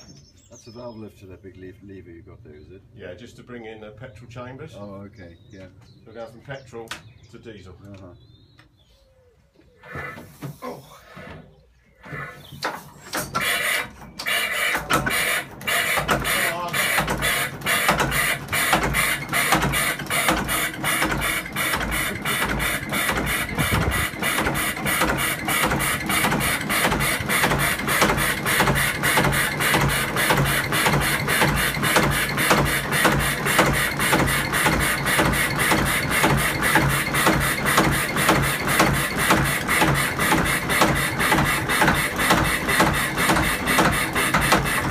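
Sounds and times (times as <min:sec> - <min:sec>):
marine engine starting and running: 0:13.1 - 0:44.9.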